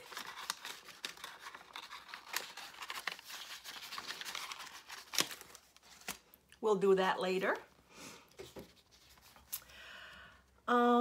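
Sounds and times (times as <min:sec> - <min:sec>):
paper rustling and crinkling: 0:00.0 - 0:06.4, 0:08.4 - 0:09.7.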